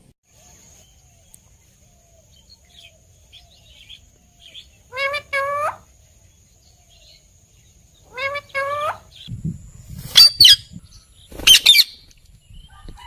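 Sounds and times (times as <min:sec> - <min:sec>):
parrot calling loudly: 0:04.9 - 0:05.9, 0:08.0 - 0:09.2.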